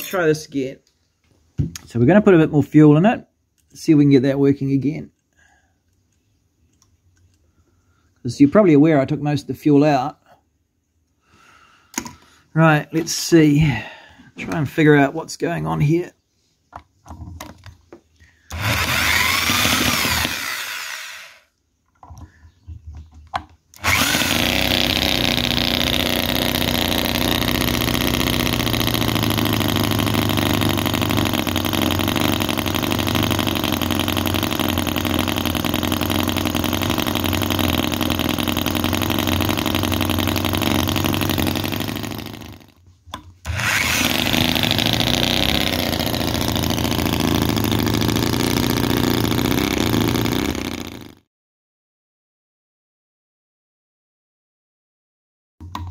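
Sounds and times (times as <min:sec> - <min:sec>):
small petrol engine running fast: 0:18.5 - 0:21.4, 0:23.8 - 0:42.8, 0:43.5 - 0:51.2
electric drill starter spinning: 0:18.5 - 0:21.5, 0:23.7 - 0:42.8, 0:43.4 - 0:51.2.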